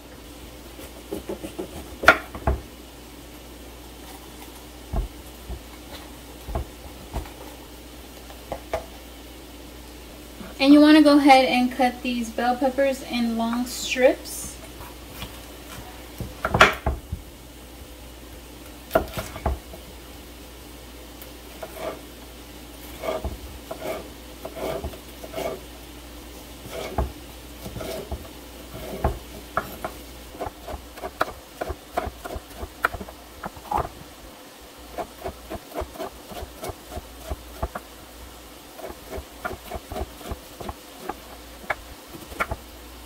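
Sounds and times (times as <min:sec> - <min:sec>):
knife knocking on cutting board: 0:04.9 - 0:05.6.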